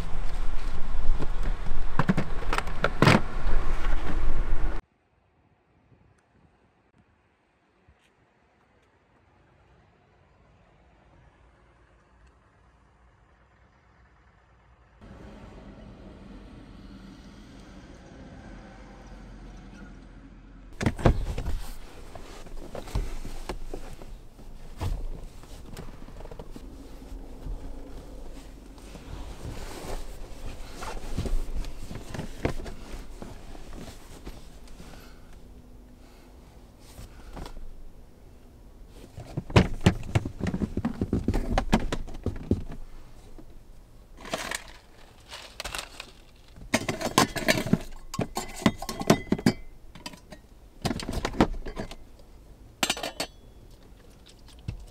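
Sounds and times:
clatter of objects: 39.1s - 42.9s, 44.2s - 52.0s
objects knocking and scraping: 39.2s - 42.8s, 44.2s - 52.0s.

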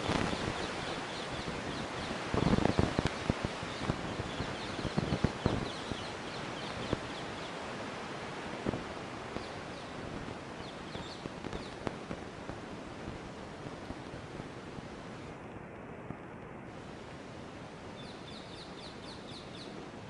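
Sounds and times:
small birds chirping: 0.0s - 12.2s, 17.9s - 20.0s
steady background hiss: 0.0s - 20.0s.

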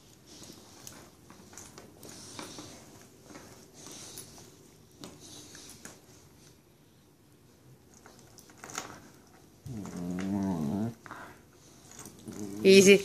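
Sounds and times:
puppies scuffling and mouthing: 7.6s - 13.0s
puppy play growl: 9.6s - 13.0s.

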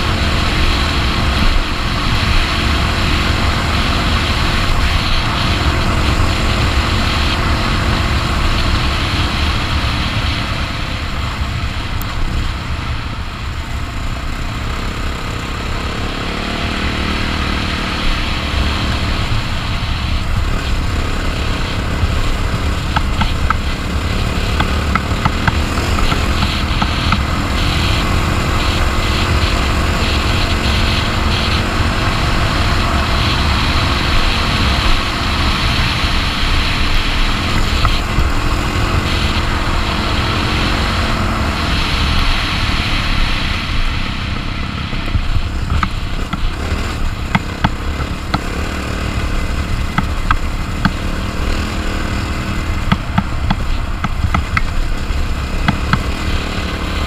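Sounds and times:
motorcycle engine running: 0.0s - 57.0s
wind noise on microphone: 0.0s - 57.0s
sharp ticks: 20.3s - 35.1s, 45.0s - 56.8s.

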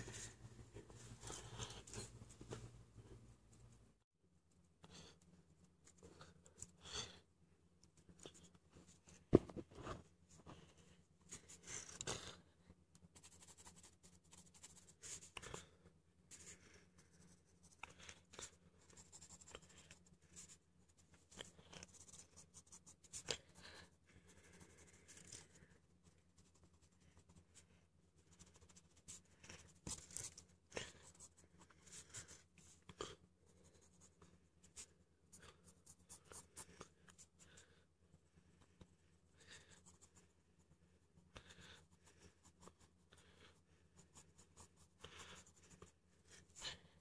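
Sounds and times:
pencil scratching on paper: 13.0s - 37.8s, 38.8s - 47.0s.

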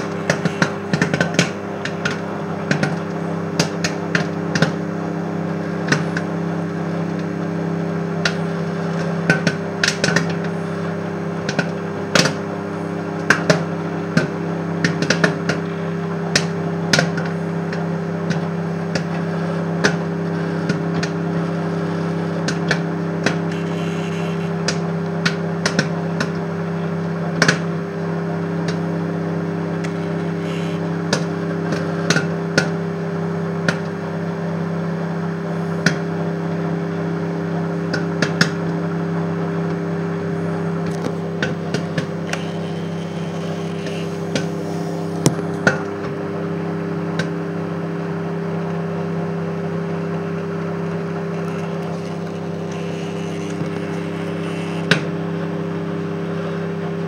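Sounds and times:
popcorn popping: 0.0s - 4.8s, 5.8s - 6.3s, 8.2s - 10.5s, 11.4s - 12.5s, 13.2s - 15.7s, 22.4s - 26.4s, 27.3s - 27.8s, 29.7s - 32.8s, 40.7s - 46.2s, 50.0s - 55.1s
microwave oven humming: 0.0s - 57.0s.

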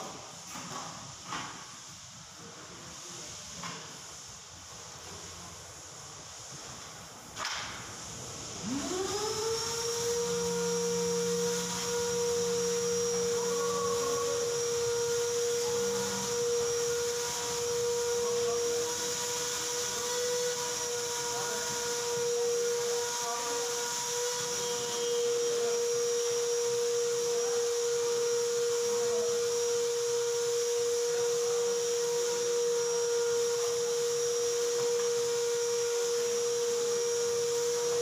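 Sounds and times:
machinery whine: 8.2s - 38.0s.

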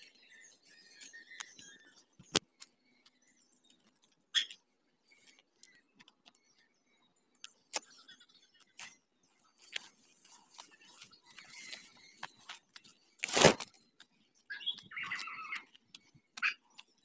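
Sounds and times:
soft rustling: 8.8s - 13.8s
sharp cracks: 13.2s - 13.7s.

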